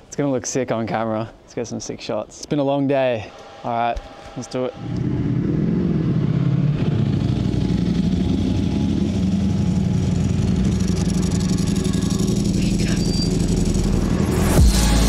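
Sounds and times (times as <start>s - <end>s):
motorcycle engines rumbling: 3.8s - 14.6s.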